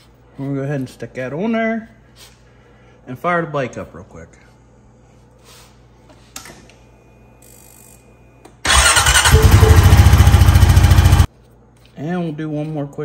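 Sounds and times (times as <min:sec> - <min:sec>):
atv engine starting and running: 0:08.6 - 0:11.3.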